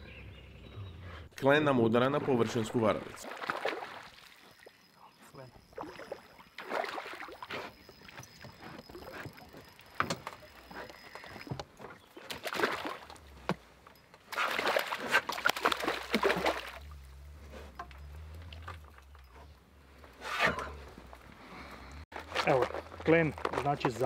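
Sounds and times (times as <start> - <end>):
water splashing around a boat: 2.0 - 19.4.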